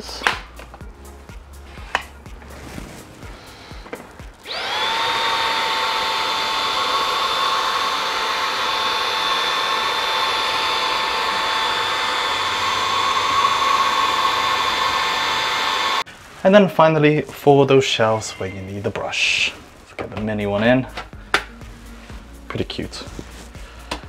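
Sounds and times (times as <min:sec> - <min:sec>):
cordless vacuum whining: 0:03.6 - 0:16.1.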